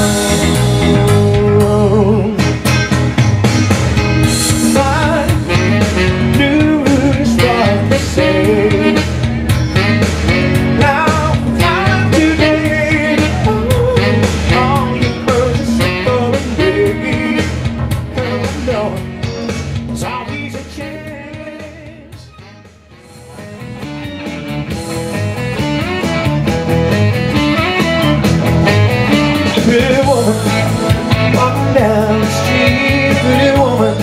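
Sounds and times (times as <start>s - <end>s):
bass and drum beat: 0.0s - 34.0s
electric guitar: 0.0s - 34.0s
saxophone: 0.0s - 34.0s.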